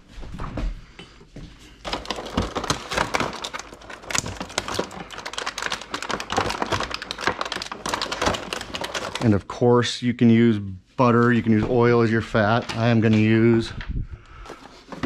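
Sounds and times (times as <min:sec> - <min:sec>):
plastic egg carton crackling: 0:01.8 - 0:09.5.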